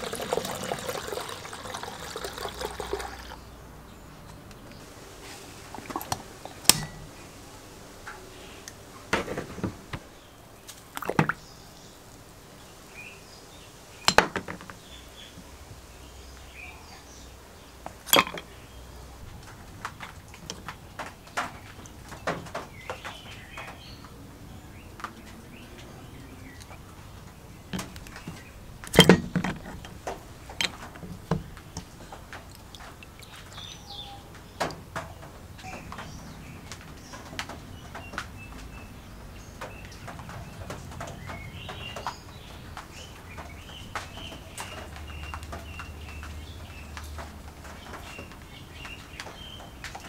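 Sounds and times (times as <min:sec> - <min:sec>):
foaming liquid fizzing: 0:00.0 - 0:03.4
metal clattering against tub: 0:05.8 - 0:07.2, 0:17.9 - 0:18.6, 0:27.8 - 0:33.0
clinking of iron parts: 0:06.6 - 0:07.1, 0:14.1 - 0:14.7, 0:18.0 - 0:18.5, 0:28.9 - 0:30.0.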